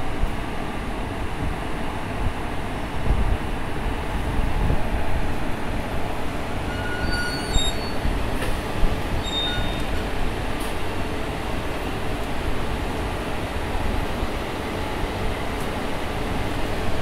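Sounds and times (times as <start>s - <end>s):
locomotive rumbling: 0.0s - 17.0s
high wheel squeals: 6.6s - 8.1s, 9.1s - 10.0s.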